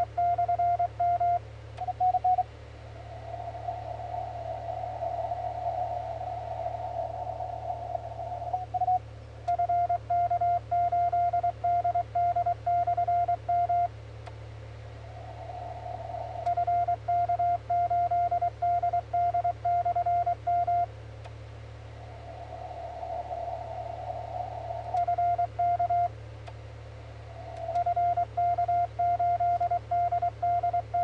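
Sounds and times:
steady low hum: 0.0s - 31.0s
radio receiver hiss: 1.7s - 10.1s, 14.2s - 18.6s, 21.2s - 29.0s.

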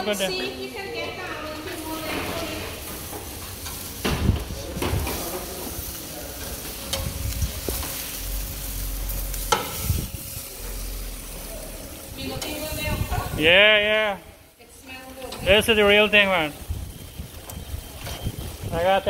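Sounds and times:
chicken sizzling on a grill: 0.0s - 19.0s.

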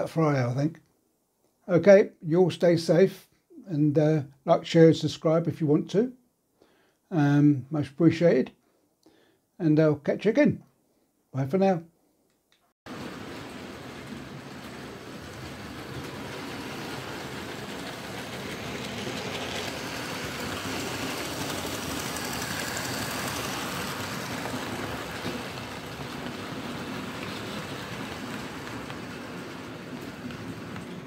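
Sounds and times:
model train motors whirring: 13.0s - 31.0s.

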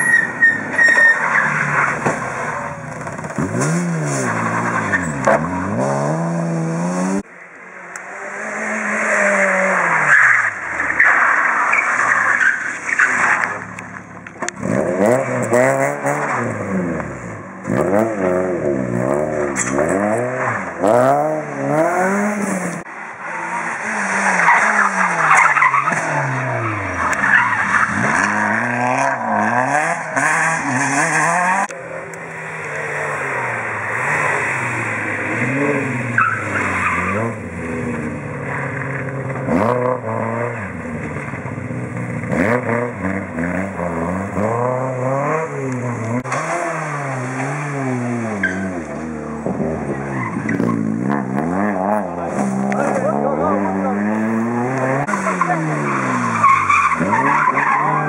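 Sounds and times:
tyres squealing and skidding: 0.0s - 5.8s, 8.2s - 14.0s, 22.8s - 31.7s, 32.3s - 58.0s
rally car engines revving: 0.0s - 58.0s.

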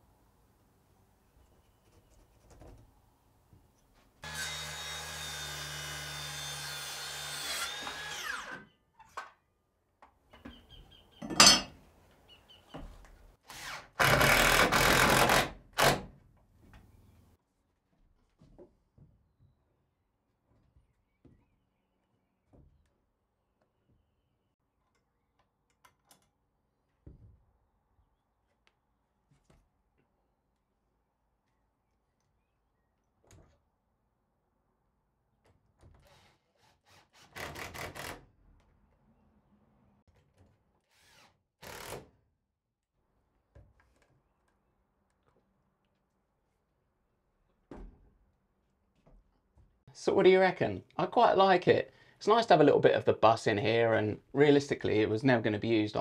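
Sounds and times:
circular saw cutting wood: 4.2s - 8.7s.

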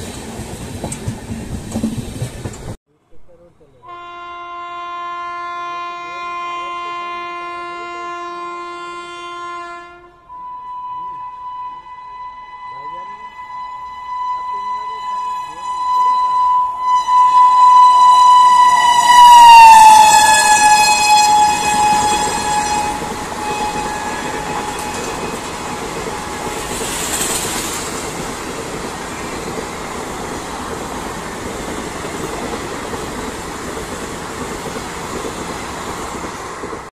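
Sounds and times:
train wheels rushing on rails: 0.0s - 2.8s, 17.6s - 36.9s
locomotive horn blast: 3.8s - 26.8s.

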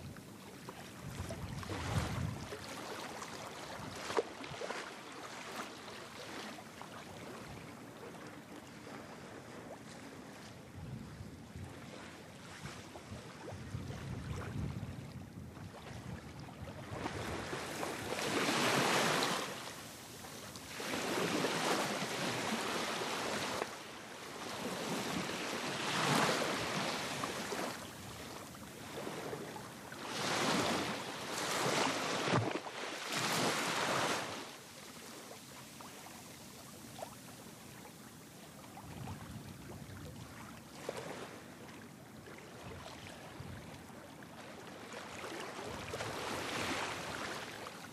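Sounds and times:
wind on microphone: 0.9s - 2.7s, 10.6s - 19.1s, 38.6s - 40.5s
waves washing in: 1.0s - 6.6s, 16.9s - 39.8s, 44.6s - 47.9s.

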